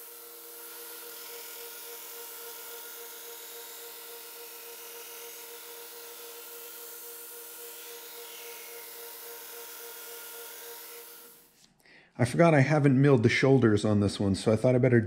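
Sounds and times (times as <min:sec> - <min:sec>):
belt grinder motor whine: 0:00.0 - 0:11.5.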